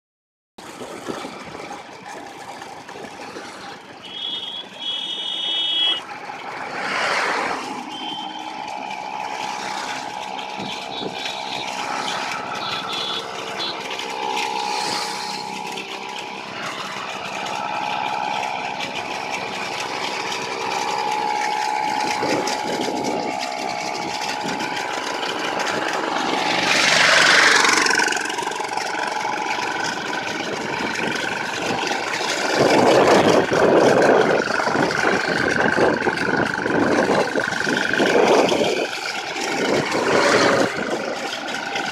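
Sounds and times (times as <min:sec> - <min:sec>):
passing vehicle: 0:00.6 - 0:41.9
small engines running: 0:00.6 - 0:41.9
brief high-pitched tone: 0:04.0 - 0:06.0, 0:07.8 - 0:08.6, 0:10.6 - 0:15.8
wind and road rush: 0:05.6 - 0:41.9.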